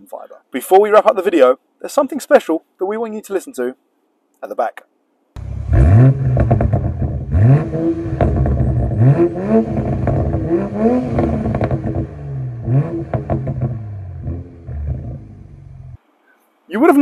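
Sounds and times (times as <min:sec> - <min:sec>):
car engine revving: 0:05.4 - 0:16.0
exhaust cracks: 0:05.4 - 0:16.0.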